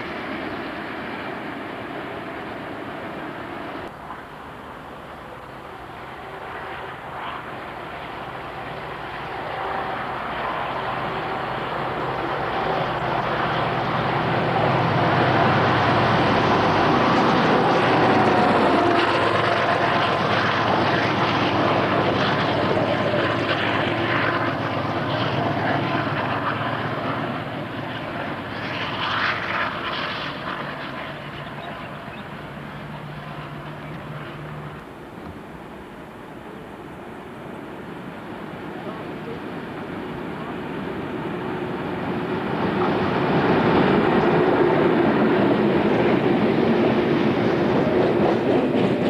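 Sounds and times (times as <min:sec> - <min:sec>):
locomotive hum and whine: 0:00.0 - 0:49.0.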